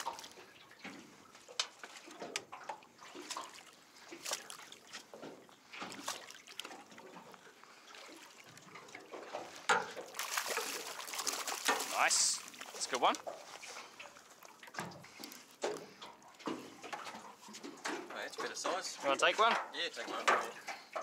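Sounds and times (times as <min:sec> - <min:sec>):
water lapping against metal boat: 0:00.0 - 0:21.0.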